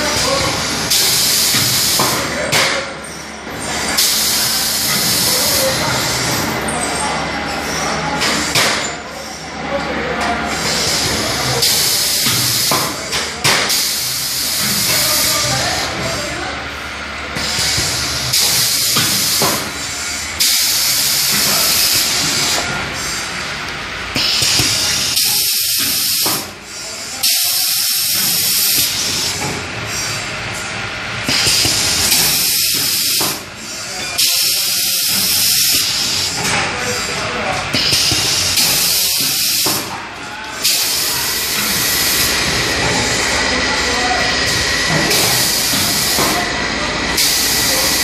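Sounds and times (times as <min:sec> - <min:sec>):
machine running: 0:10.0 - 0:48.0
compressed air hiss: 0:24.2 - 0:26.5, 0:27.2 - 0:30.2.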